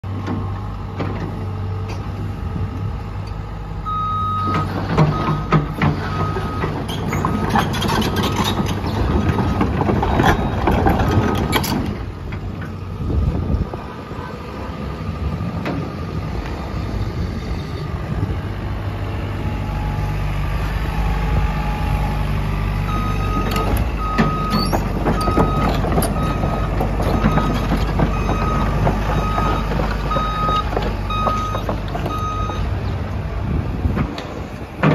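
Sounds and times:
excavator diesel engine running: 0:00.0 - 0:34.9
travel alarm beeping: 0:03.8 - 0:05.5, 0:22.9 - 0:28.6, 0:29.2 - 0:32.7.

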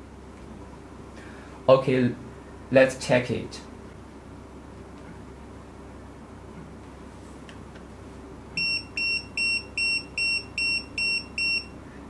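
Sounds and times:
quick electronic pager beeps: 0:08.6 - 0:11.7.

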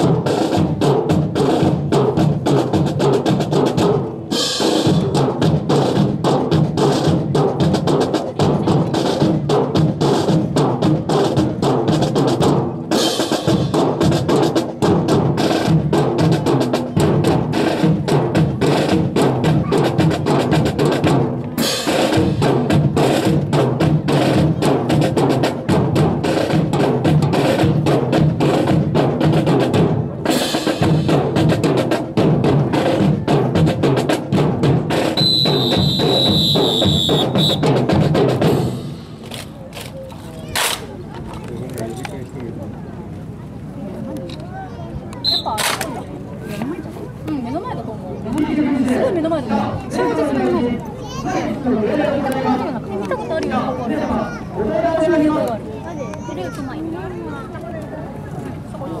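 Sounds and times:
snare and bass drum cadence: 0:00.0 - 0:40.9, 0:45.2 - 0:46.0.

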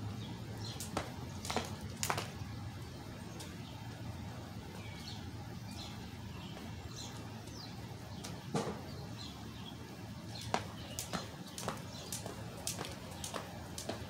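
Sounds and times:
low outdoor rumble: 0:00.0 - 0:14.0
small birds chirping: 0:00.0 - 0:14.0
jump rope slapping pavement: 0:00.5 - 0:02.4, 0:10.2 - 0:14.0.

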